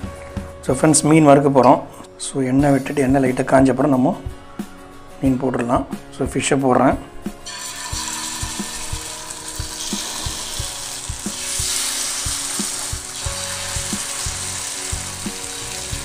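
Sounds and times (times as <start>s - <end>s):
fish sizzling in oil: 7.4s - 16.0s.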